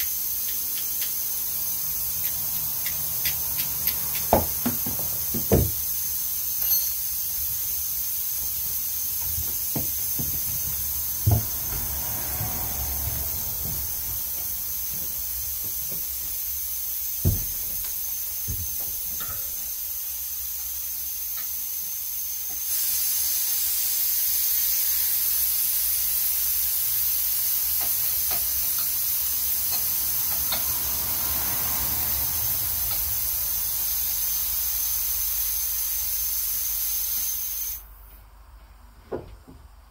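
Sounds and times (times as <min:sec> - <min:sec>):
compressed air hissing: 0:00.0 - 0:38.0.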